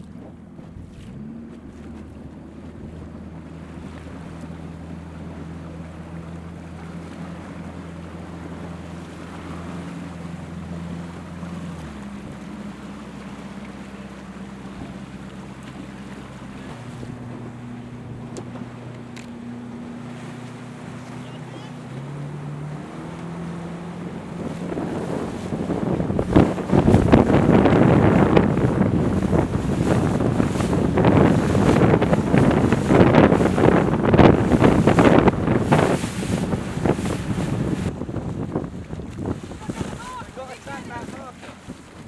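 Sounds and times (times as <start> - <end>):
boat engine humming: 0.0 - 42.0
water splashing: 0.0 - 42.0
wind noise on microphone: 24.0 - 42.0.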